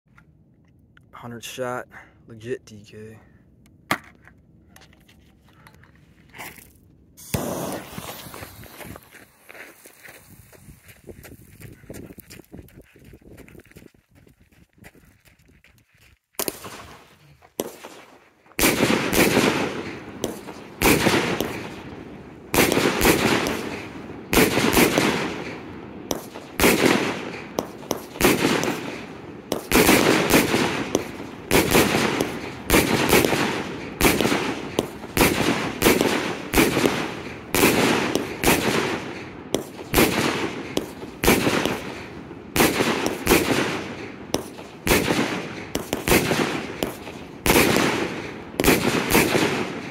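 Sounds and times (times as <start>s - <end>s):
firework bangs with echo: 7.2s - 8.8s, 22.5s - 42.0s.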